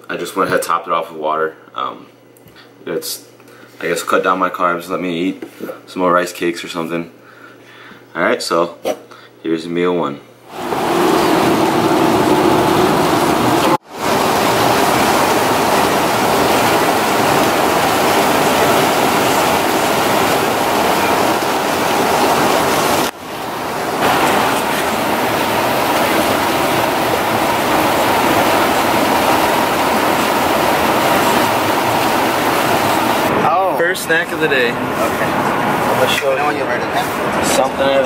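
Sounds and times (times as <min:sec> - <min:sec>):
road noise inside vehicle: 0:10.5 - 0:33.4, 0:34.8 - 0:38.0
tyres hissing on wet road: 0:10.5 - 0:33.4.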